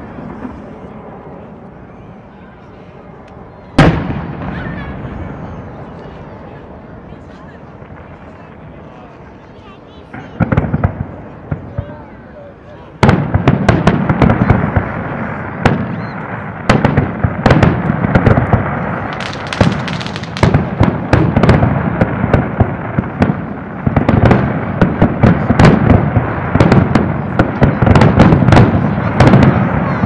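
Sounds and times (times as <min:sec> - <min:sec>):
firework shells bursting: 0:17.6 - 0:21.7.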